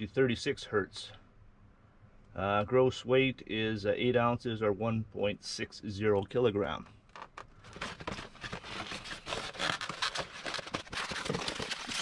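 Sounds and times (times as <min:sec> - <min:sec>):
cardboard and foam scraping: 0:07.7 - 0:12.0.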